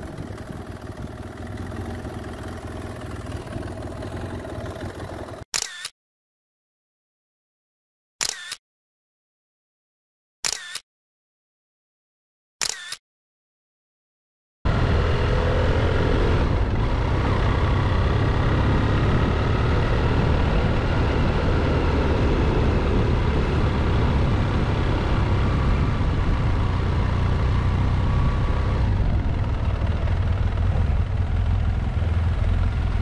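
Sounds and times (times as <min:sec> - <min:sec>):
motorcycle engine running: 0:00.0 - 0:05.5, 0:14.7 - 0:33.0
road and wind noise: 0:00.0 - 0:05.7, 0:14.7 - 0:33.0.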